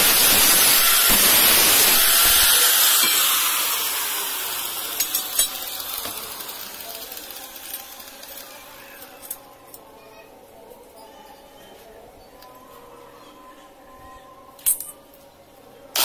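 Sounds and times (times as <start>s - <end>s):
hiss: 0.0s - 4.4s.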